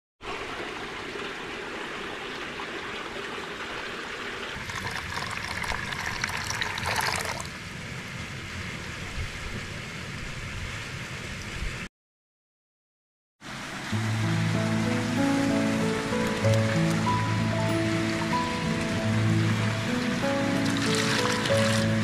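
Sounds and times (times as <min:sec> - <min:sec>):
water rushing along a canal: 0:00.2 - 0:11.7, 0:13.4 - 0:22.0.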